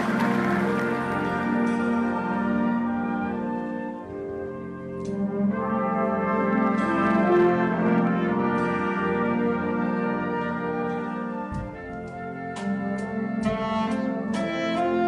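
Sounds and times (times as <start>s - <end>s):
concert band playing brass chords: 0.0s - 15.0s.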